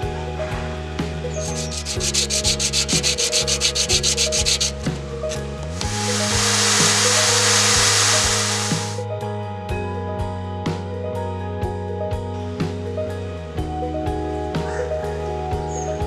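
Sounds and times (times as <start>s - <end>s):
background music: 0.0s - 16.0s
metal scratching on sandpaper: 1.3s - 9.0s
spinning wheel hiss: 5.8s - 9.0s.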